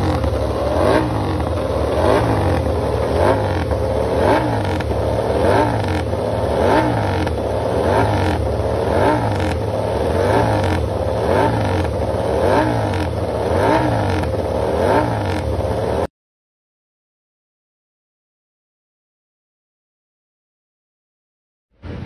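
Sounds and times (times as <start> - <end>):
motorcycle engine revving: 0.0 - 16.1.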